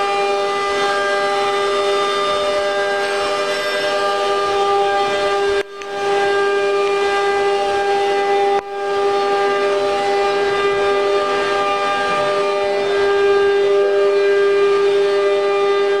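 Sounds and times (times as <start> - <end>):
router spindle high-pitched whine: 0.0 - 16.0.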